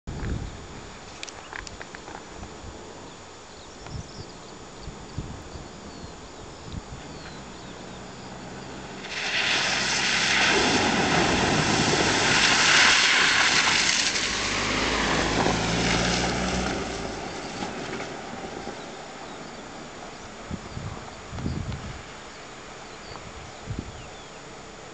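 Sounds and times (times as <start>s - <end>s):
tyres rushing through water: 8.2s - 20.4s.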